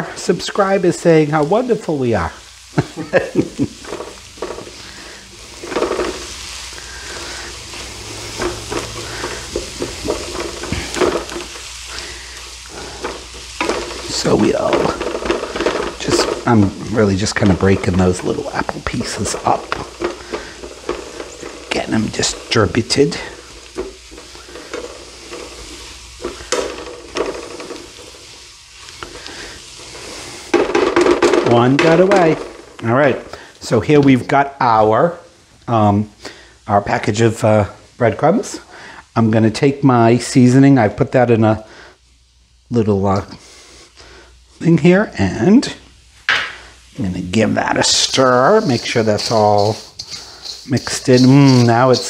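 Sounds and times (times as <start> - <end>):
vegetables sizzling in a pan: 0.0 - 52.0
utensil stirring and scraping: 2.8 - 32.7, 47.4 - 52.0.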